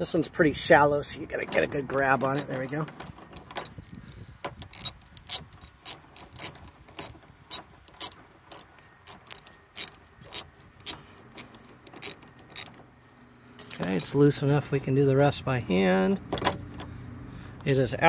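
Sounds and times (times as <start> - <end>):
ratchet wrench clicking: 4.6 - 12.7.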